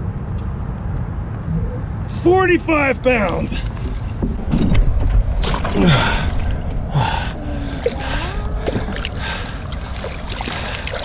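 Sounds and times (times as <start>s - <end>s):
low rumble: 3.0s - 11.0s
fish splashing in water: 7.6s - 11.0s.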